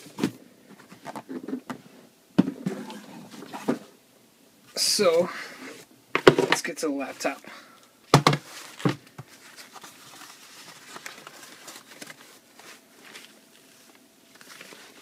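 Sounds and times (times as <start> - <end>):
protective sleeve rustling: 8.4 - 15.0.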